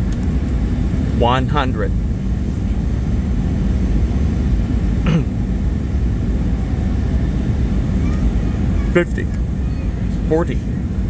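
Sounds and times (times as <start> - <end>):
jet engines rumbling in cabin: 0.0 - 11.0
rushing airflow: 1.9 - 11.0
person clearing throat: 5.0 - 5.4.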